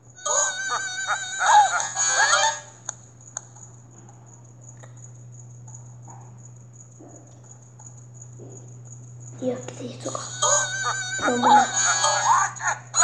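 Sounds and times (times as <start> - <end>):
faint high whine: 0.0 - 13.0
low electrical hum: 0.0 - 13.0
sharp clicks: 2.8 - 3.7
cartoon voice and music: 9.4 - 12.7.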